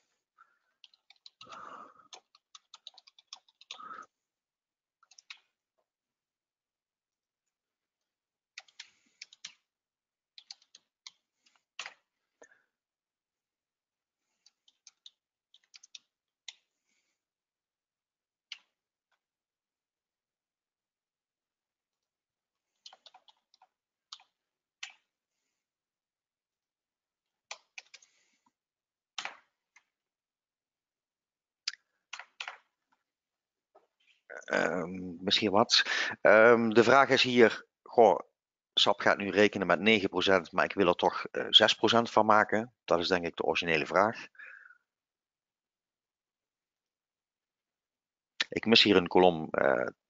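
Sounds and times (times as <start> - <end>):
computer keyboard key presses: 0.8 - 3.8.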